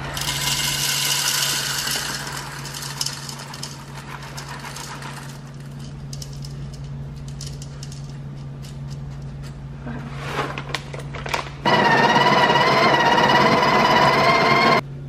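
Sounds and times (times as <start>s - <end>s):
coffee beans pouring rattle: 0.0s - 8.2s
single beans clicking: 0.1s - 9.0s.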